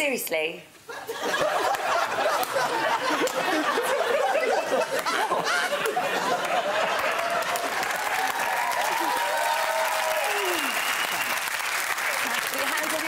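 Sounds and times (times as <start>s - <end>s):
studio audience laughing: 0.9s - 9.4s.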